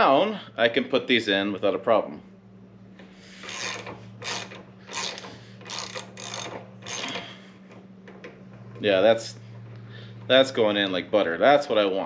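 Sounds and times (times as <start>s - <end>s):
ratchet wrench clicking: 3.4s - 7.2s.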